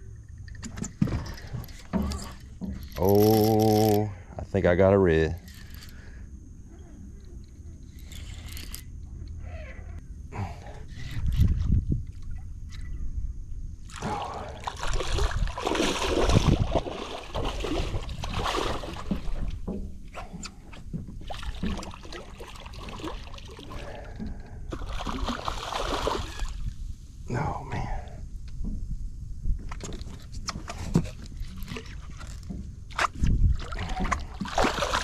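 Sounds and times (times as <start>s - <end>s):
fish splashing in water: 13.9s - 19.5s, 21.3s - 26.6s, 33.6s - 35.0s
dull low thumps: 26.7s - 29.8s.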